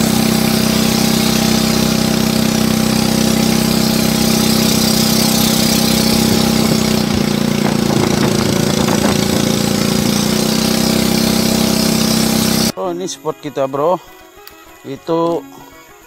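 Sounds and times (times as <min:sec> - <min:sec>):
boat motor running: 0:00.0 - 0:12.7.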